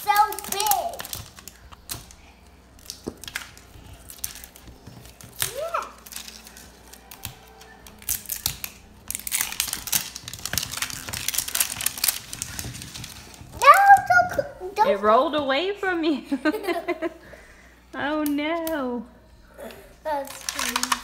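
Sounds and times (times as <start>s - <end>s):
wrapper crinkling: 0.0s - 14.1s, 20.1s - 21.0s.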